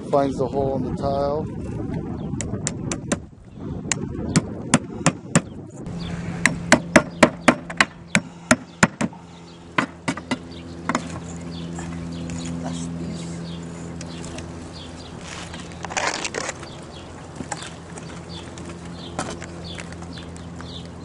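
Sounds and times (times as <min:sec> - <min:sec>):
hammer striking nails: 0:06.4 - 0:09.2, 0:09.8 - 0:11.0.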